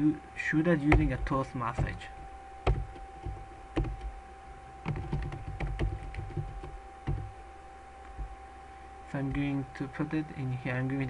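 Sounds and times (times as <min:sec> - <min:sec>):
typing on computer keyboard: 0:04.9 - 0:07.3.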